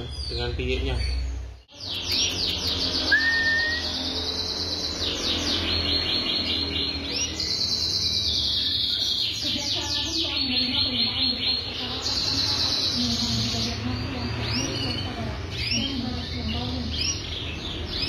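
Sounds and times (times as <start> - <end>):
canary singing trills: 0.0 - 18.0
short rising whistle: 3.1 - 3.9.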